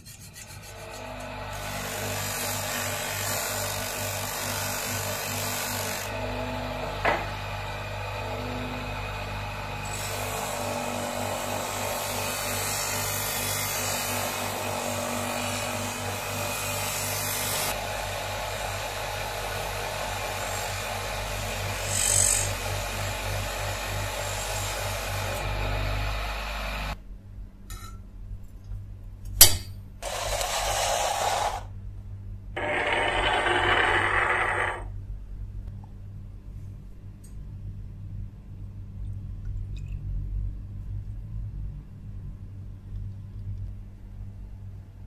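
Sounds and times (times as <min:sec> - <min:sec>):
knife grinding on polishing wheel: 0:00.0 - 0:06.1, 0:11.4 - 0:16.1, 0:21.6 - 0:22.6, 0:30.0 - 0:31.7, 0:32.6 - 0:34.9
electric motor humming: 0:32.6 - 0:34.9.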